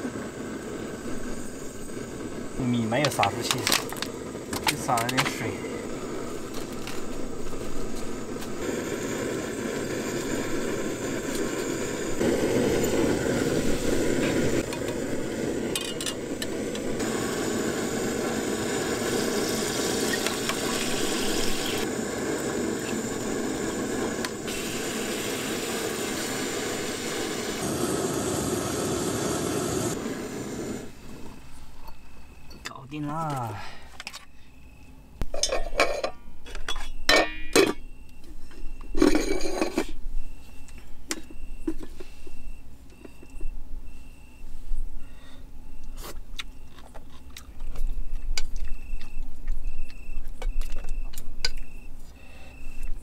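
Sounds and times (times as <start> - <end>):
gas stove burner rushing: 0.0 - 32.5
cooking utensils clattering: 35.3 - 37.9, 38.9 - 40.0.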